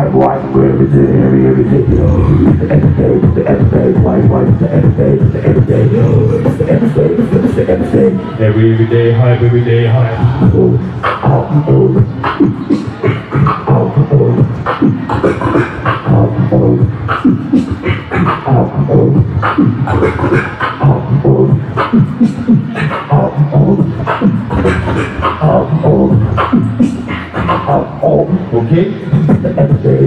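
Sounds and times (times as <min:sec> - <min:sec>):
hummed bass tones: 0:00.0 - 0:08.0
beatboxing through a microphone: 0:00.0 - 0:30.0.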